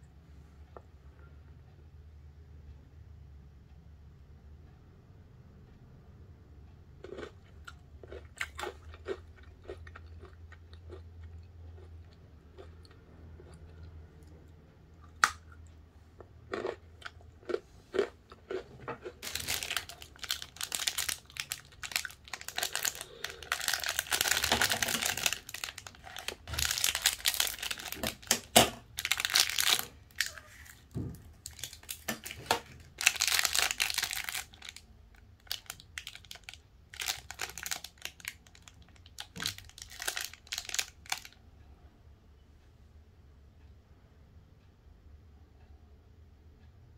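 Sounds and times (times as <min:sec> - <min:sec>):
plastic wrapper crinkling and tearing: 0:19.0 - 0:34.8, 0:35.4 - 0:41.4.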